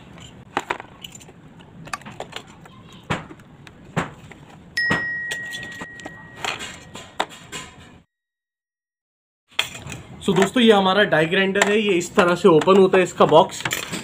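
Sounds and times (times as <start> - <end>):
bell-like ding: 4.8 - 7.2.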